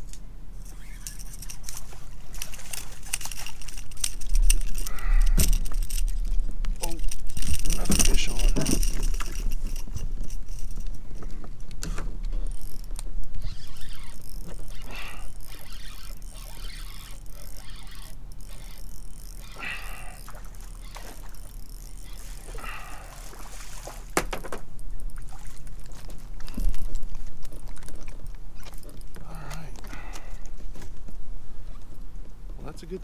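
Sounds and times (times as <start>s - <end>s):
fishing reel reeling: 0.6s - 10.8s, 12.4s - 23.6s.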